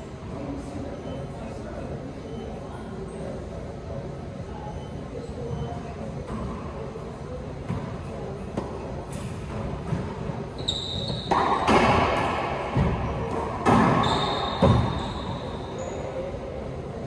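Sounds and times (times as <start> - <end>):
racquetball hits echoing: 7.6 - 15.7
sneakers squeaking on hardwood: 9.7 - 12.1, 12.7 - 16.2.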